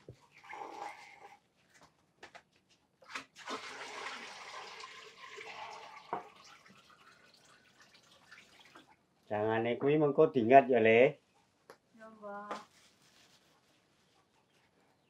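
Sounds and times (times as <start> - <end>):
soft water-like rush: 3.4 - 9.0.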